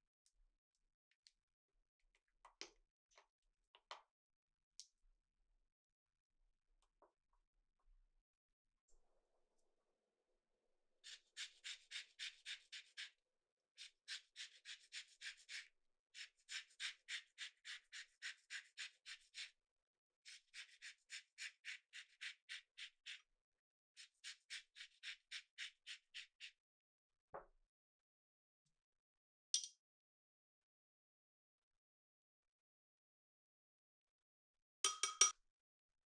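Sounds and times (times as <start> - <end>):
lemon scraping on a grater: 11.0 - 13.2, 13.8 - 19.5, 20.3 - 23.2, 24.0 - 26.5.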